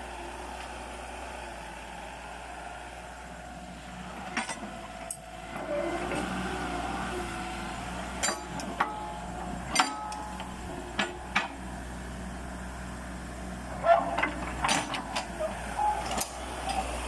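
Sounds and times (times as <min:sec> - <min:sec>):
excavator engine running: 0:00.0 - 0:17.0
hydraulic whine: 0:04.0 - 0:11.9
sharp metal clanks: 0:09.7 - 0:11.6.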